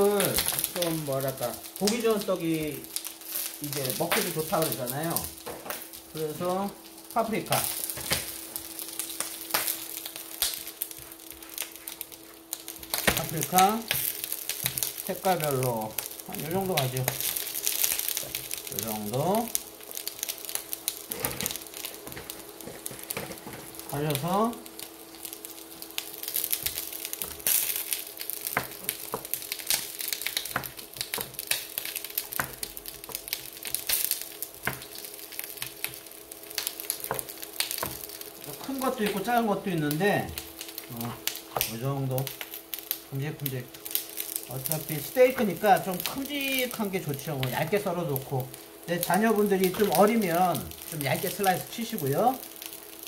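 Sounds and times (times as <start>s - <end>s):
steady low hum: 0.0s - 53.0s
man speaking: 3.6s - 5.3s, 13.2s - 13.9s, 15.1s - 17.2s, 18.7s - 19.6s, 23.9s - 24.6s, 38.5s - 42.3s, 43.1s - 43.7s, 44.5s - 52.4s
peppers tapping in tray: 26.3s - 34.0s, 34.6s - 36.0s, 36.6s - 38.1s.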